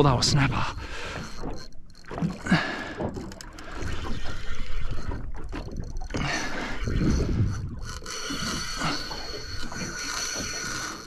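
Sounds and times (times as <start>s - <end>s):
water against boat hull: 0.0s - 11.0s
wind buffeting microphone: 6.2s - 8.0s.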